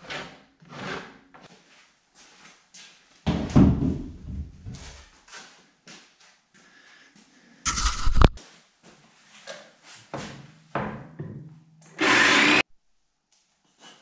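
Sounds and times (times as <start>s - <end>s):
jigsaw cutting wood: 12.0s - 12.6s.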